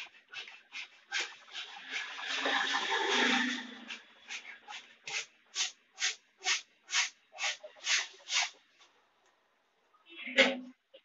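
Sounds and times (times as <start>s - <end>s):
rhythmic rubbing strokes: 0.0s - 8.7s.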